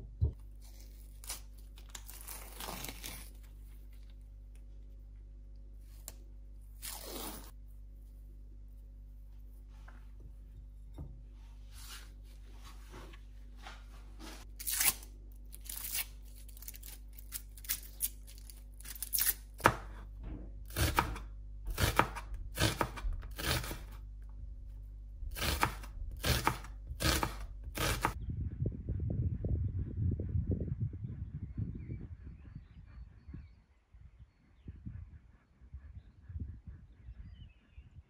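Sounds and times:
knife cutting on cutting board: 20.7s - 24.0s, 25.3s - 28.2s.

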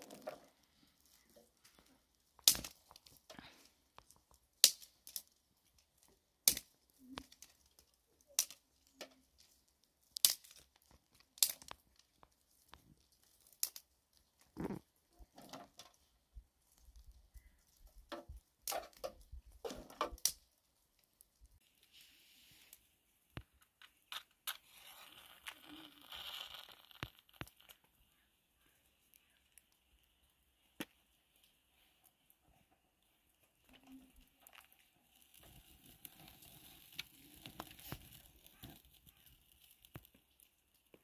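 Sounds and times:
dry twigs snapping: 0.0s - 14.5s, 20.1s - 21.4s, 34.4s - 41.0s
rustle of dry leaves and twigs: 0.0s - 41.0s.

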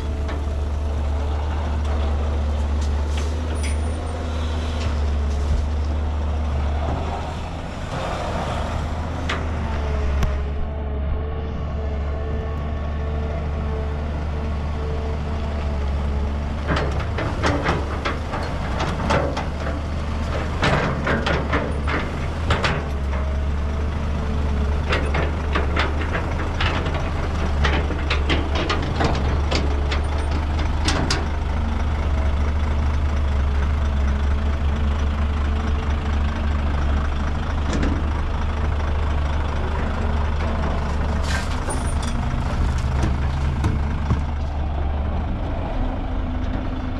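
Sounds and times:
heavy diesel machinery running: 0.0s - 46.9s
sharp knocks and clatter: 16.6s - 23.4s, 40.7s - 44.4s.

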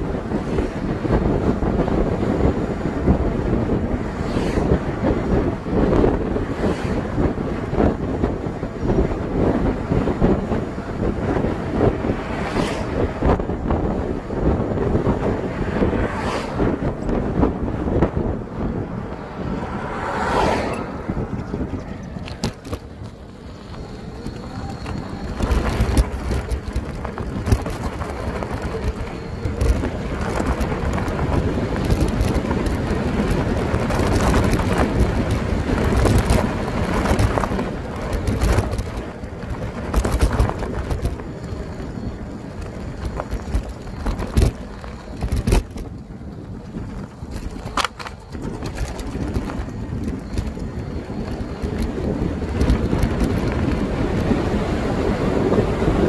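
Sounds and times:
bike tyres on trail: 0.0s - 56.0s
wind buffeting microphone: 0.0s - 56.0s
bike knocks and rattles: 21.2s - 54.4s.

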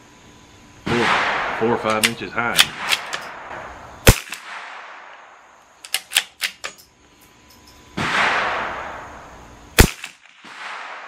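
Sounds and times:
rifle shot crack: 0.8s - 5.2s, 8.0s - 11.0s
rifle bolt clicks: 1.9s - 3.3s, 5.8s - 6.8s.

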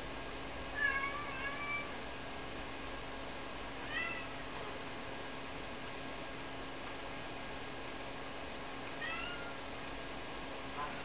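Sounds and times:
cat meowing: 0.8s - 2.0s, 3.8s - 4.4s, 9.0s - 9.6s.

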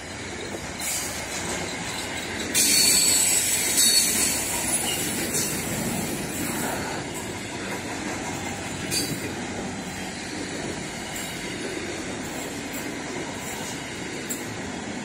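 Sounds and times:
train wheels rumbling on rails: 0.0s - 15.0s
high-pitched wheel squeal: 2.6s - 5.2s.

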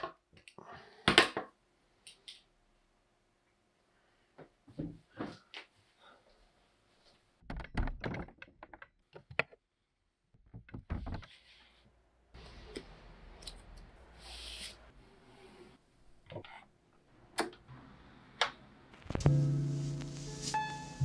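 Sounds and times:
record sleeves being flipped: 18.9s - 21.0s.

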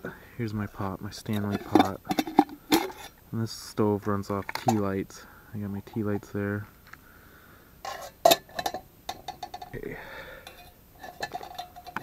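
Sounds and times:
metal clinks and knocks: 1.3s - 3.2s, 4.4s - 4.9s, 7.9s - 9.8s, 10.4s - 12.0s.

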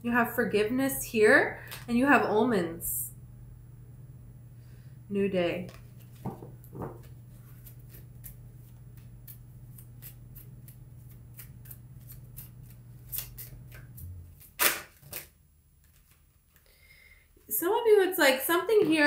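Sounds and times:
cards being shuffled: 5.6s - 16.6s.

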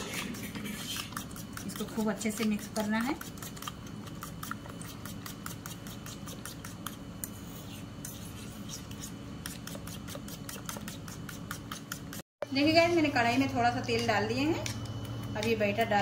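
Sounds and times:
beaten eggs sloshing: 0.0s - 12.2s
fork clicking against bowl: 1.0s - 7.3s.

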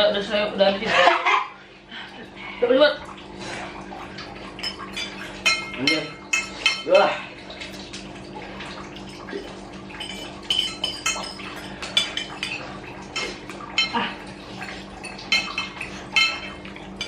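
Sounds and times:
steady low hum: 0.2s - 17.0s
cutlery clinking on plates: 4.6s - 7.1s, 9.1s - 17.0s.

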